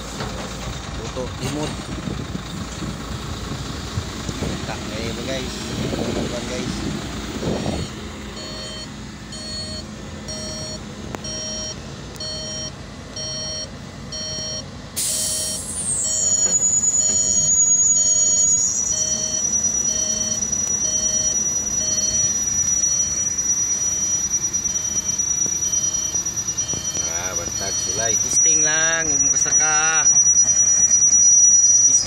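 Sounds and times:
reversing alarm beeping: 4.0s - 32.0s
air hiss: 15.0s - 16.0s
high steady whistle: 15.0s - 32.0s.

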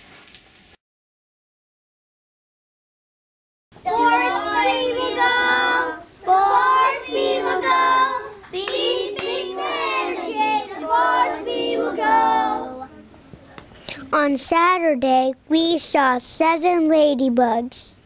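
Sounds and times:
children singing together: 3.8s - 13.1s.

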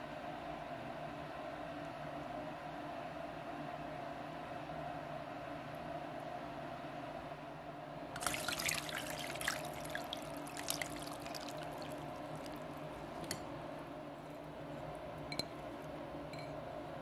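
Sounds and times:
water splashing through strainer: 8.2s - 12.8s.

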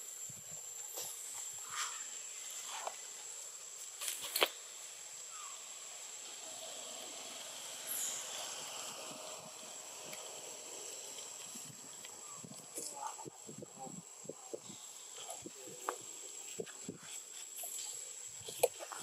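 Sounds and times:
high-pitched whine: 5.2s - 16.7s.

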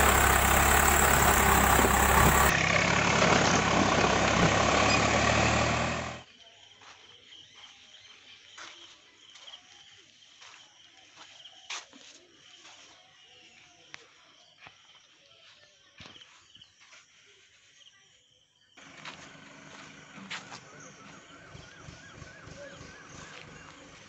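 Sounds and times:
tractor diesel engine under load: 0.0s - 6.2s, 18.8s - 24.0s.

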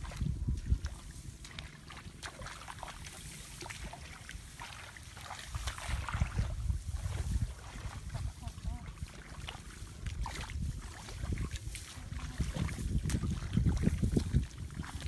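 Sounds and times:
gusty wind buffeting microphone: 0.0s - 1.5s, 5.5s - 9.0s, 9.6s - 15.0s
rustles of wading through grass: 0.0s - 15.0s
splashes in shallow muddy water: 0.0s - 15.0s.

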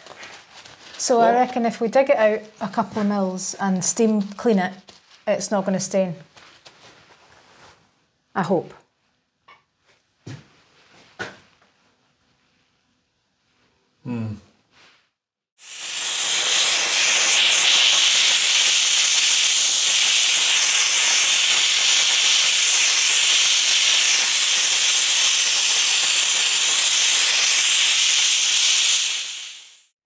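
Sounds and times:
steam cleaner hissing: 15.6s - 29.9s.

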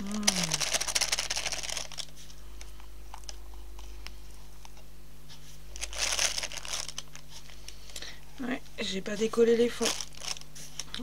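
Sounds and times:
plastic bag crinkling: 0.0s - 2.3s, 5.7s - 8.1s, 9.3s - 11.0s
low steady hum: 0.0s - 11.0s.

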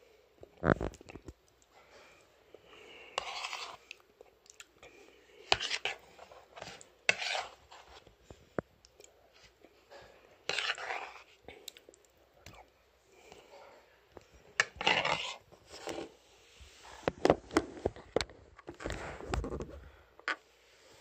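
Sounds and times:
spoon scraping and clinking in bowl: 3.2s - 3.9s, 6.6s - 8.0s, 10.5s - 11.3s.

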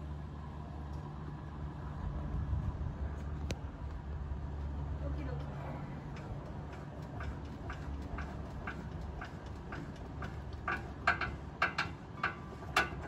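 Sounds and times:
metal clacks: 6.1s - 13.0s.

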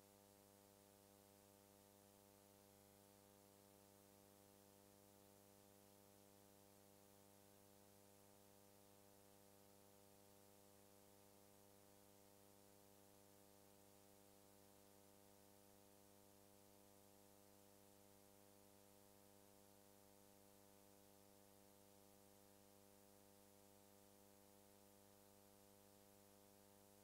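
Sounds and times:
faint electrical hum with hiss: 0.0s - 27.0s.

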